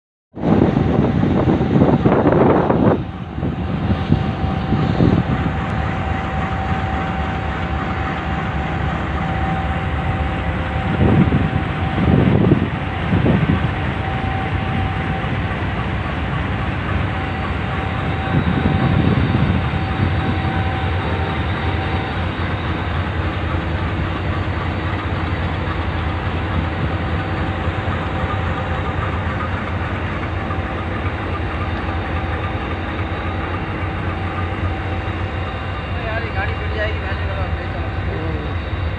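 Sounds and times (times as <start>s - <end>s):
wind buffeting microphone: 0.4s - 31.2s
locomotive idling: 0.9s - 38.9s.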